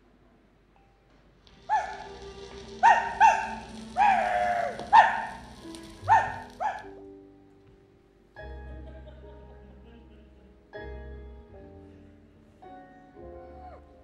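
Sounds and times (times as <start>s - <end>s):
soft sustained music: 0.8s - 14.0s
small dog yapping: 1.6s - 6.9s.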